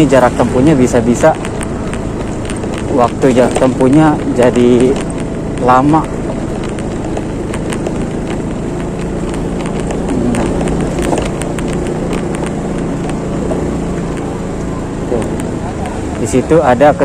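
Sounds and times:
clicks and rattles: 0.0s - 16.4s
motorbike engine running: 0.0s - 17.0s.

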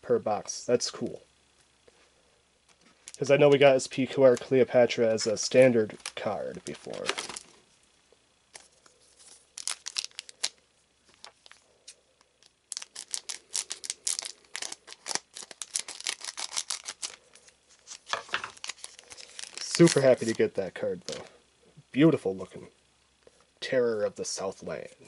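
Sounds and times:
wrapper crackling torn open: 5.9s - 7.5s, 9.2s - 10.6s, 12.4s - 20.4s.

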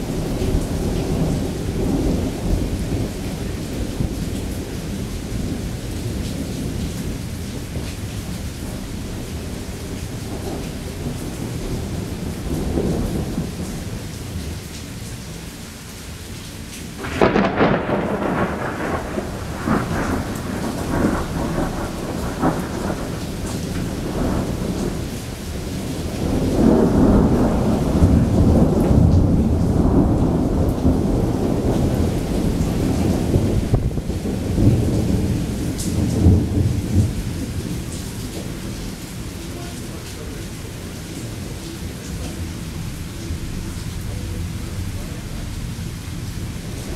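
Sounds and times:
deep thunder rumble: 0.0s - 15.1s, 17.0s - 39.1s
heavy rain: 0.0s - 46.9s
thunder crack: 17.0s - 37.8s.

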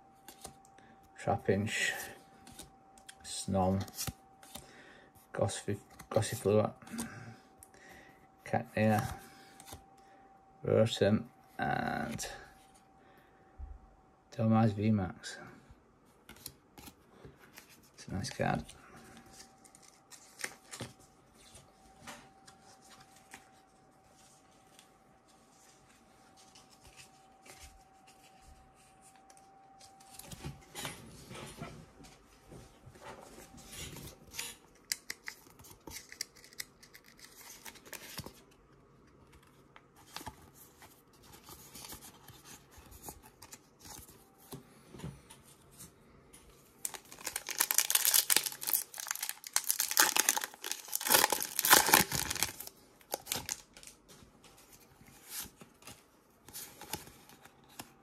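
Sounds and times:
trading cards rustling and clicking: 34.7s - 44.2s, 46.8s - 58.0s
foil wrapper ripped open: 46.9s - 53.8s.

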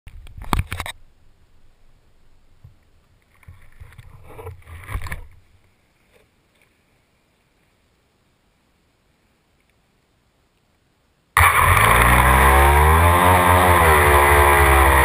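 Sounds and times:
faint tick: 10.5s - 10.8s.

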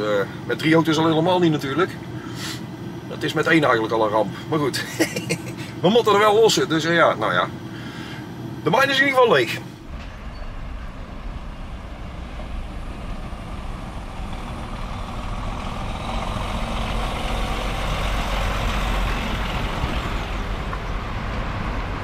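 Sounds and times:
truck diesel engine passing: 9.5s - 22.0s.

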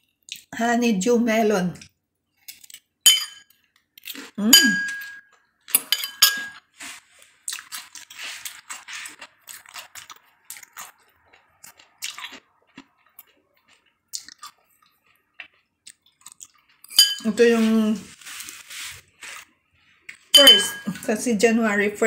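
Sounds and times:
fork clinking on plate: 3.1s - 3.5s, 4.5s - 6.6s, 16.9s - 17.3s, 20.4s - 21.0s
melon chewing crunch: 6.6s - 17.0s.

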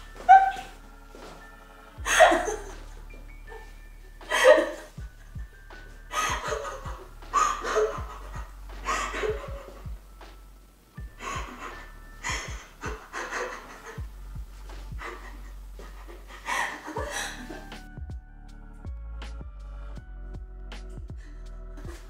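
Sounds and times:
person laughing and crying: 0.2s - 0.8s, 2.0s - 10.0s, 11.0s - 17.9s.

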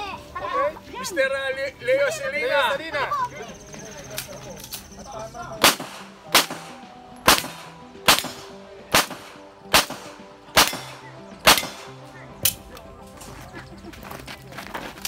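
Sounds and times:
pistol shots: 5.6s - 12.6s.

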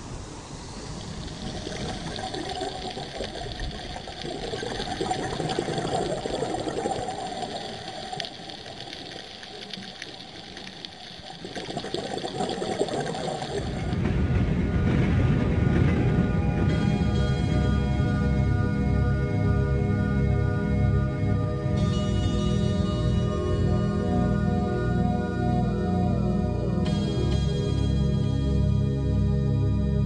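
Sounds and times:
muffled underwater wash: 0.0s - 30.0s
faint ticks: 7.4s - 11.6s.

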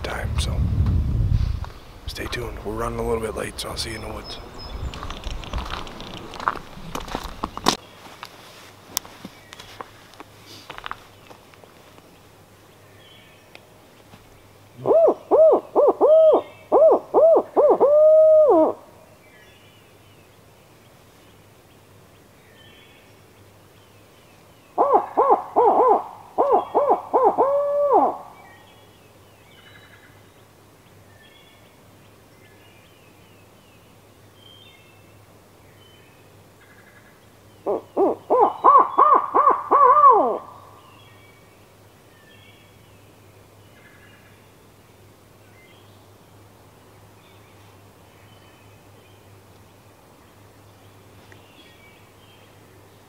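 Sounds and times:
owl hooting: 14.8s - 18.9s, 24.8s - 28.6s, 37.6s - 40.8s.

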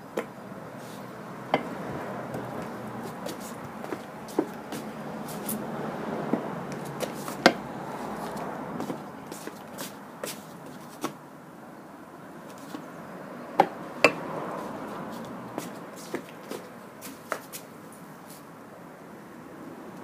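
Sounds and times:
footsteps on wooden decking: 1.6s - 11.2s, 13.6s - 18.4s.

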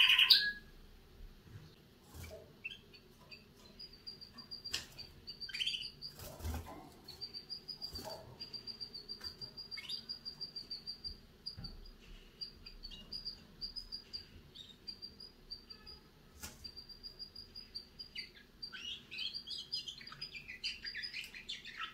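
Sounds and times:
young canary chirping: 0.0s - 0.6s, 2.2s - 21.9s
rustles in a cage: 1.4s - 3.6s, 6.0s - 8.5s.

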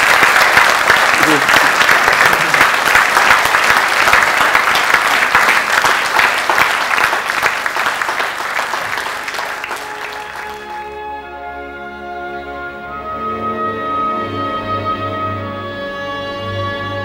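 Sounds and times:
audience applauding: 0.0s - 10.9s.

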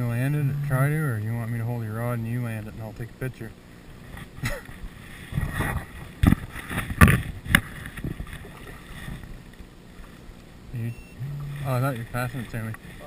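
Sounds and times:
fish splashing in shallow water: 3.8s - 10.6s.

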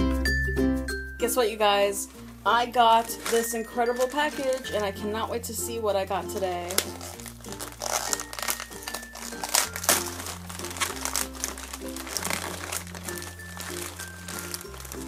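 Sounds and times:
background music with bass line: 0.0s - 2.9s
plastic bag crinkling: 1.3s - 15.0s.

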